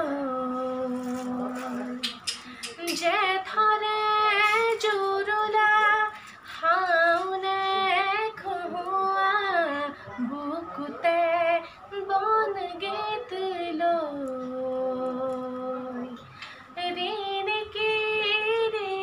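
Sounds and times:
woman singing unaccompanied: 0.0s - 19.0s.

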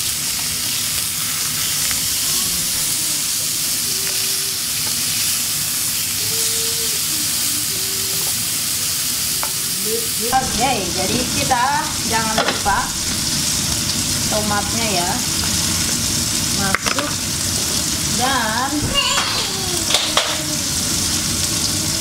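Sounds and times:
tongs turning meat: 0.0s - 14.1s
meat sizzling in grill pan: 0.0s - 22.0s.

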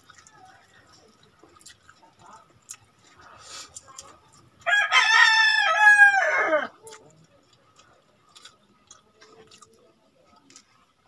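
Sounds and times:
faint clicks of eating: 0.0s - 4.7s, 6.8s - 11.0s
rooster crowing: 4.7s - 6.7s.

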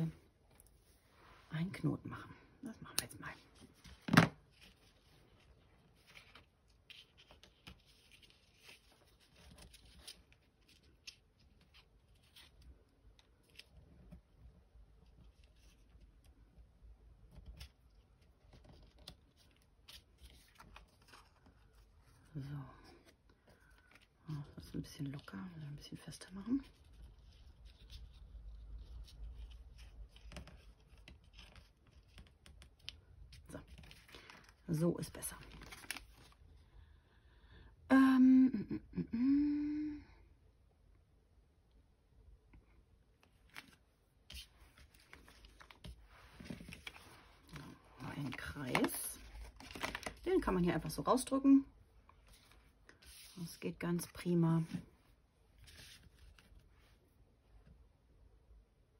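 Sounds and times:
paper card and cord rustling: 2.9s - 25.7s, 26.6s - 36.5s, 43.2s - 51.4s, 52.0s - 57.1s
low steady hum: 33.0s - 58.9s.

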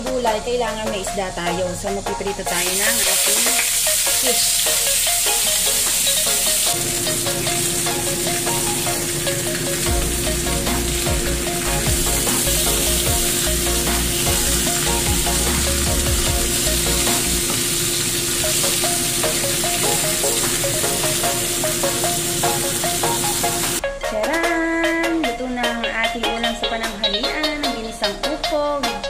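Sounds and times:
fish sizzling in hot oil: 2.4s - 23.8s.

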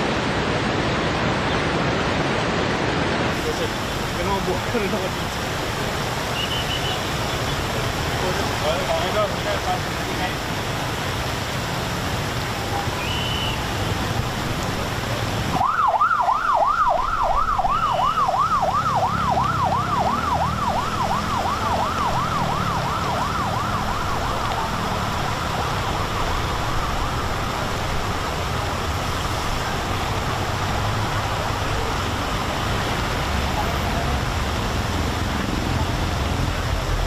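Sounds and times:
rushing floodwater: 0.0s - 37.0s
emergency siren yelping: 15.6s - 27.4s.

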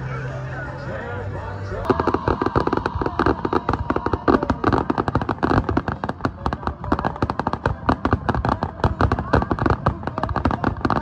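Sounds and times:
fireworks popping and banging: 1.8s - 11.0s.

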